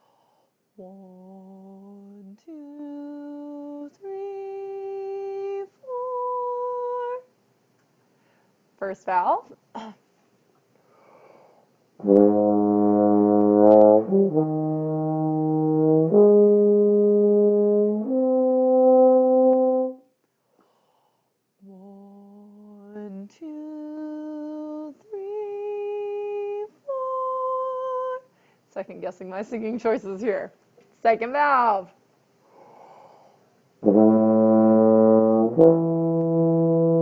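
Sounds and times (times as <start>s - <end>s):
woman singing notes: 0.8s - 7.3s, 21.6s - 28.3s.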